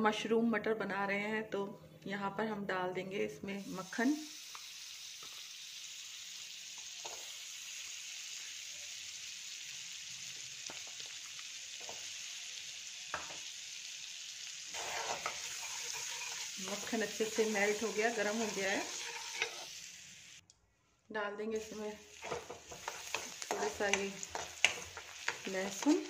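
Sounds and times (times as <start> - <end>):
butter sizzling: 3.6 - 20.4, 21.6 - 26.0
spoon stirring: 14.8 - 19.7, 22.1 - 26.0.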